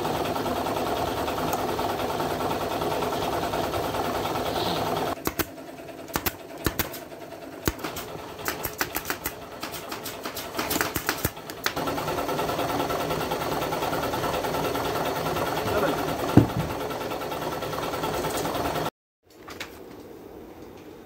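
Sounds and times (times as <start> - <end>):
staple gun snapping: 5.2 - 5.5, 6.1 - 7.0, 7.7 - 11.8.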